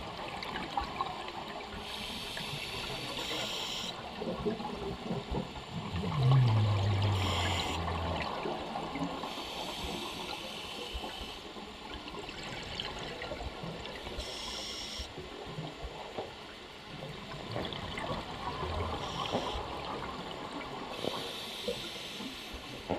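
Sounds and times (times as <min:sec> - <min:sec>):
watery background: 0:00.0 - 0:22.9
bubbling rush of exhaled air: 0:05.8 - 0:08.7
diver breathing through regulator: 0:07.0 - 0:07.9.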